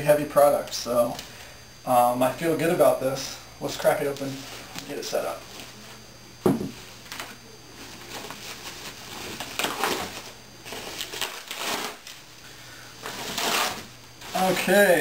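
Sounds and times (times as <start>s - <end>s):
picture frame thump on table: 6.4s - 6.8s
foam wrapping rustling: 7.8s - 15.0s.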